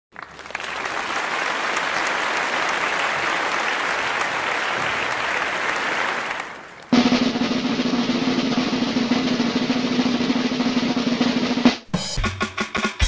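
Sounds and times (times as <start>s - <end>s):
audience applause: 0.1s - 7.0s.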